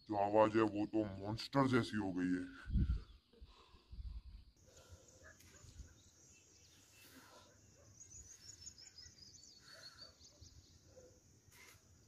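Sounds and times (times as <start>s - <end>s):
faint high-pitched chirps: 2.6s - 12.0s.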